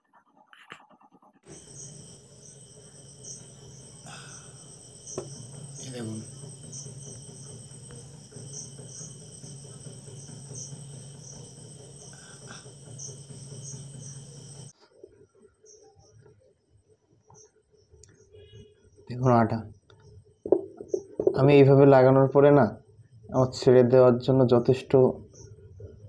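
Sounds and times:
insects chirping: 1.4 - 14.8, 17.3 - 22.2, 23.0 - 26.0
low steady hum: 1.5 - 14.7.

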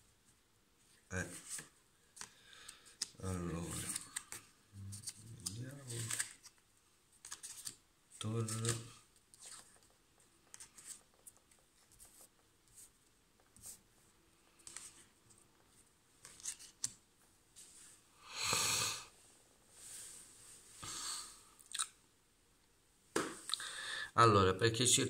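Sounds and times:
cards rustling and tapping: 1.4 - 6.6, 7.2 - 13.7, 14.5 - 15.1, 16.2 - 17.0.

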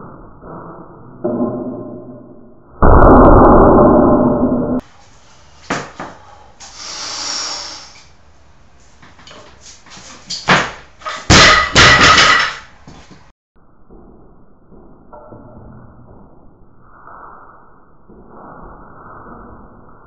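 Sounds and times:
barbell knocks and metallic clanks: 10.5 - 12.7.

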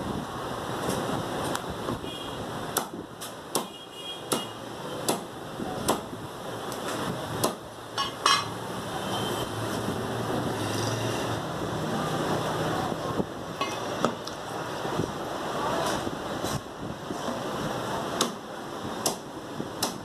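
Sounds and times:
cleaver chopping on wooden block: 2.8 - 3.7, 4.3 - 6.1, 7.4 - 7.6, 18.2 - 18.4, 19.0 - 19.2, 19.8 - 20.0.

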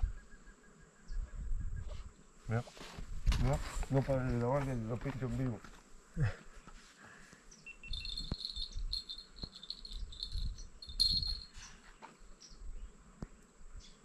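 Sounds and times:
insects chirring: 7.5 - 14.0.

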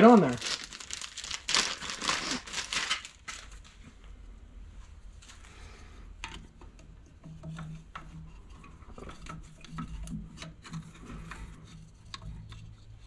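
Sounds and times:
belt clicking and rubbing on pulleys: 6.2 - 13.0.

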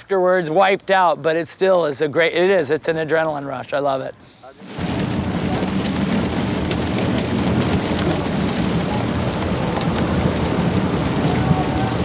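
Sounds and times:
fish and water gushing onto screen: 4.6 - 12.0.

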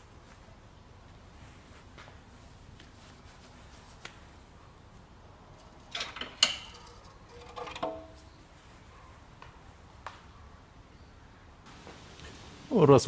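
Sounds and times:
metal oil pan scraping and clanking: 5.7 - 8.4.

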